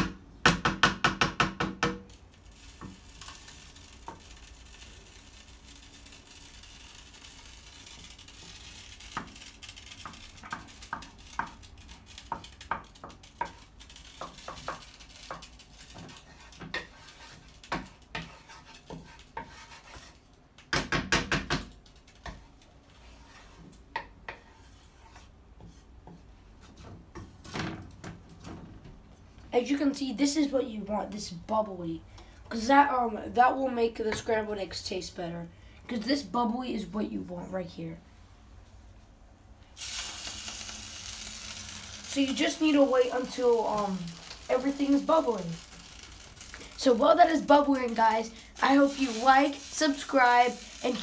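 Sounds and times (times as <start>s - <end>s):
faint sizzle: 2.1s - 20.4s, 29.5s - 51.0s
wooden spatula scraping frying pan: 2.1s - 20.9s, 21.8s - 27.7s, 39.8s - 51.0s.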